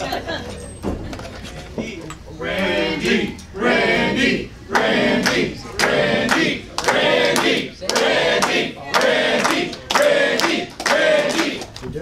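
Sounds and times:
group singing over a beat: 2.5s - 11.8s
handclaps: 4.8s - 11.9s.

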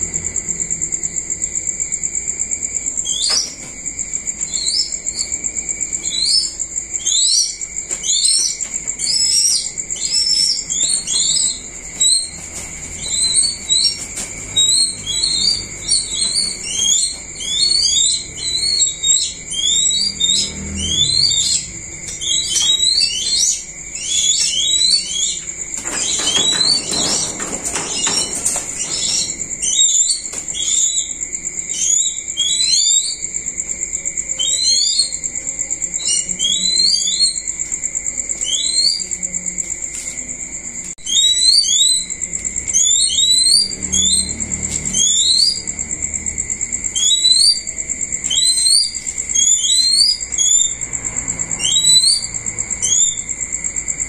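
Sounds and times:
crickets trilling: 0.0s - 54.0s
high-pitched bird chirps: 3.0s - 3.6s, 6.0s - 33.3s, 34.4s - 35.2s, 38.4s - 39.1s, 41.0s - 45.7s, 46.9s - 47.7s, 48.3s - 50.9s, 51.6s - 53.3s.

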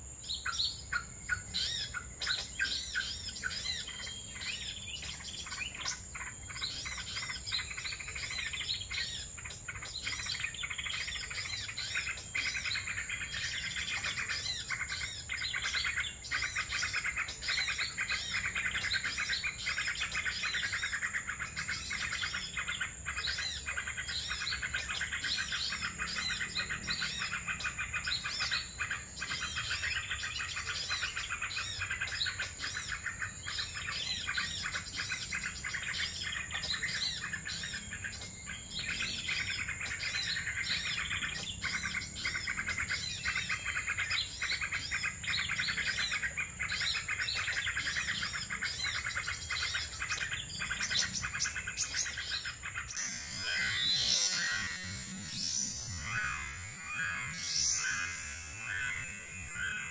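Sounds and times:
songbirds chirping: 0.0s - 59.9s
thin high whine: 52.9s - 59.9s.

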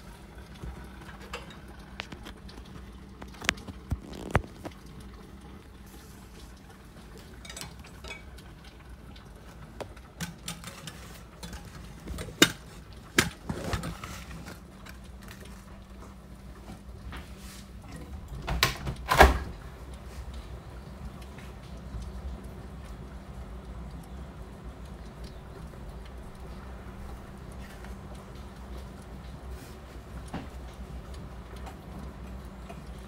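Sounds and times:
heavy rain hiss: 0.0s - 1.4s, 2.0s - 10.1s, 18.8s - 33.0s.

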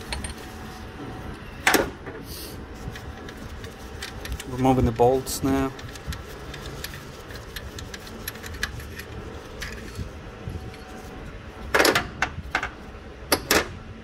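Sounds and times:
ratchet wrench clicking: 5.8s - 10.0s.

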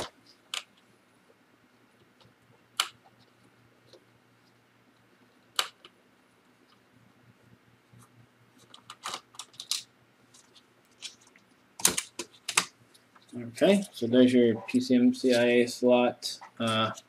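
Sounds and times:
sharp clicks of laptop parts: 11.8s - 12.7s.

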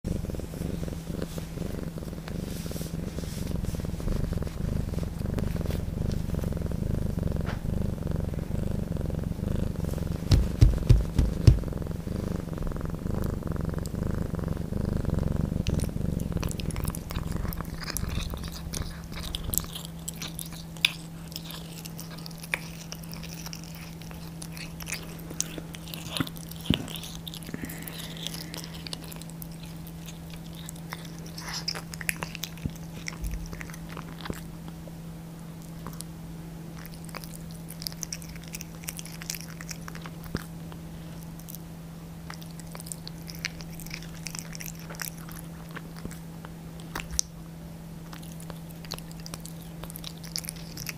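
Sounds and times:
cat purring: 0.0s - 41.6s, 42.2s - 47.4s, 48.0s - 50.9s
cat chewing with wet crunches: 9.8s - 11.8s, 15.3s - 34.8s, 35.5s - 36.1s, 36.7s - 41.6s, 42.2s - 47.4s, 48.0s - 50.9s.

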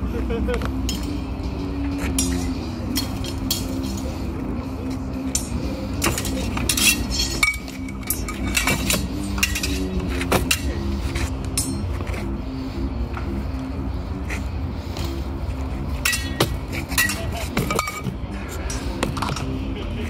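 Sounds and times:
swords clashing: 0.7s - 4.1s, 4.9s - 12.0s, 16.0s - 19.1s.

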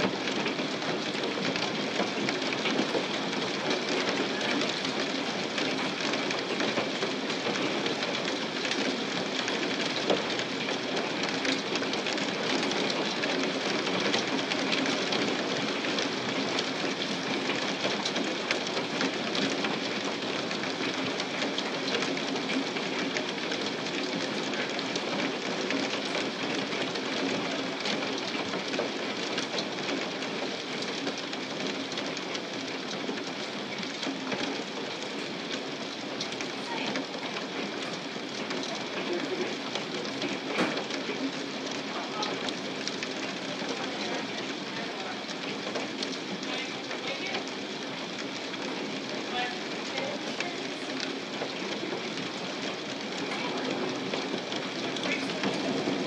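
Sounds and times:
hailstones pelting ground: 0.0s - 56.0s.

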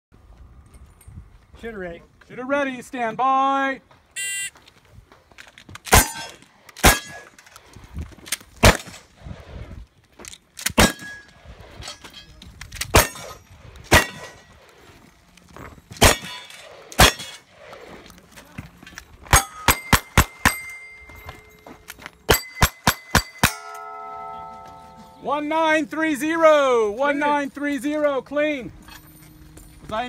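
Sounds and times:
shotgun firing: 5.9s - 7.2s, 8.6s - 9.0s, 10.7s - 11.2s, 13.9s - 14.4s, 16.0s - 17.4s.

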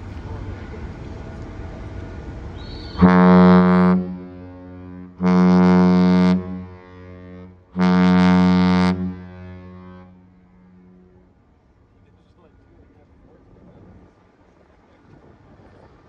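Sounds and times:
ship horn blasts: 0.2s - 11.4s.

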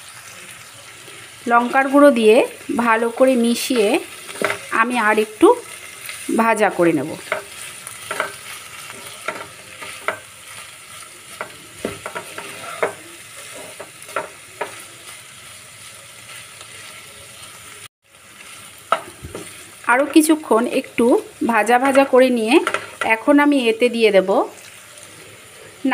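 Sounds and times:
vegetables frying in oil: 0.0s - 25.9s
spatula scraping pan: 7.2s - 15.2s.

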